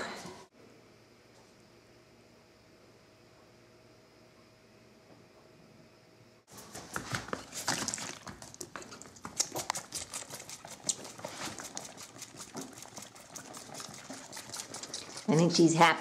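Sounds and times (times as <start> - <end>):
lamb suckling on bottle teat: 6.8 - 15.8.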